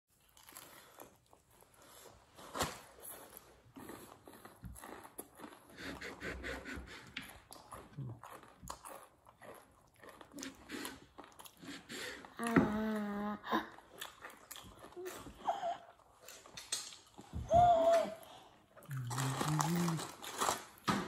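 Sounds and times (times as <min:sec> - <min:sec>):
man chewing crispy food: 0:00.1 - 0:02.3, 0:03.0 - 0:06.5, 0:07.1 - 0:12.4, 0:13.7 - 0:17.3, 0:18.6 - 0:20.8.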